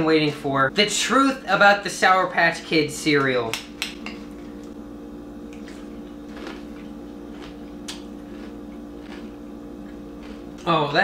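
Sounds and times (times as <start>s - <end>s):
steady hum: 0.0s - 11.0s
cereal crunching while chewed: 5.6s - 10.7s.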